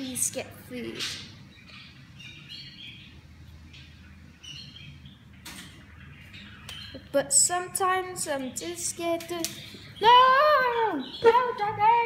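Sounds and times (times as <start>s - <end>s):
budgerigars chirping: 0.9s - 7.5s.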